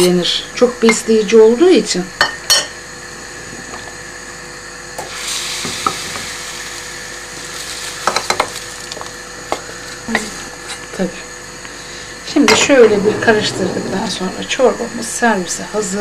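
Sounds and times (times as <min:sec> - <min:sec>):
hot butter sizzling in soup: 0:05.0 - 0:10.5.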